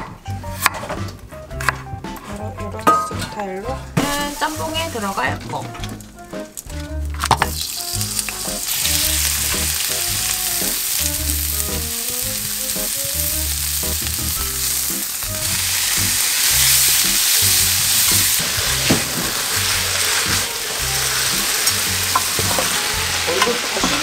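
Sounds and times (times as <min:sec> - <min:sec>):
soft background music: 0:00.0 - 0:24.0
food sizzling in a pan: 0:04.0 - 0:05.2, 0:07.2 - 0:24.0.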